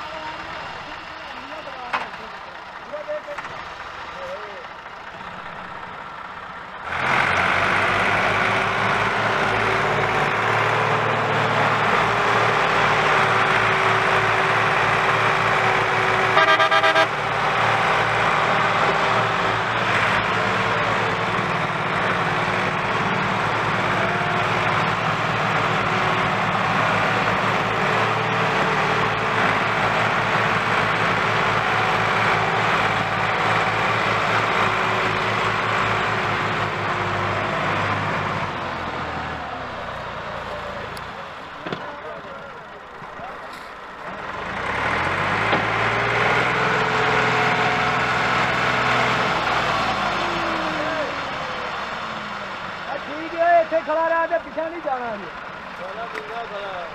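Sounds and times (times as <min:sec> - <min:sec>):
diesel tractors under load: 0:00.0 - 0:56.9
horn: 0:16.3 - 0:17.2.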